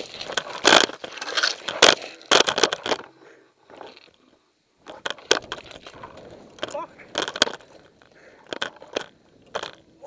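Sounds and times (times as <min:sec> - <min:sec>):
brush rustling: 0:00.0 - 0:04.2.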